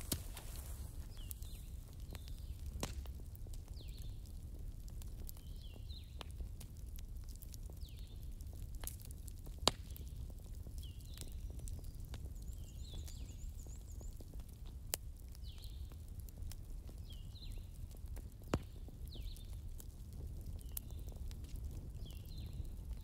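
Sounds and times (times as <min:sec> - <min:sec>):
wood fire crackling and popping: 0:00.0 - 0:23.0.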